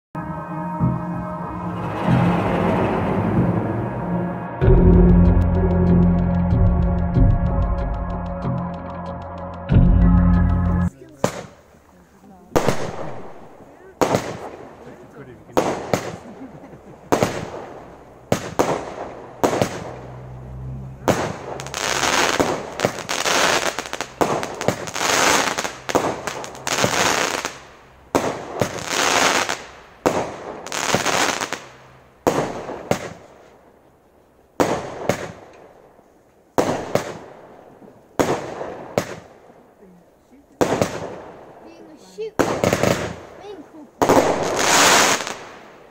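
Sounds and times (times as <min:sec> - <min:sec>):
firework bangs: 0:12.5 - 0:16.3, 0:17.0 - 0:20.4, 0:21.0 - 0:33.4, 0:34.6 - 0:35.9, 0:36.6 - 0:39.5, 0:40.6 - 0:41.6, 0:42.3 - 0:45.9.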